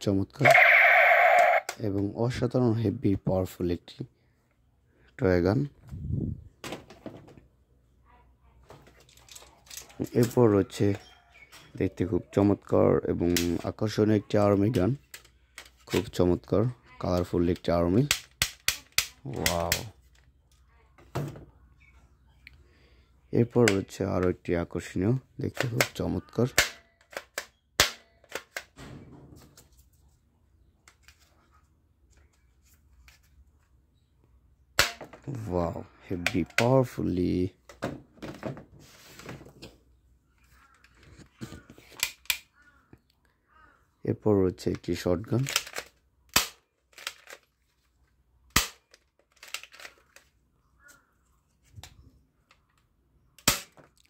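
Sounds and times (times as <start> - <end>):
plastic toy gun clicks: 18.0 - 19.9, 25.6 - 28.7, 41.9 - 42.5, 45.4 - 47.5, 48.5 - 50.3.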